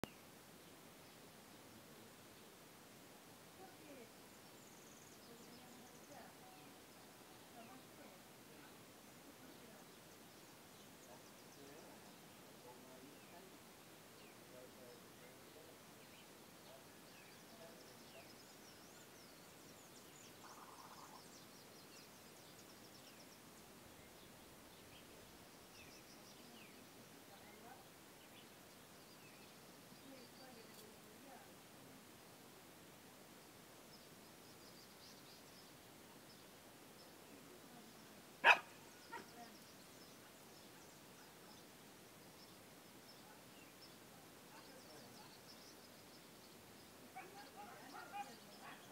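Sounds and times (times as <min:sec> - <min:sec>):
distant birds chirping: 0:03.6 - 0:48.9
dog barking sharply: 0:38.4 - 0:38.8.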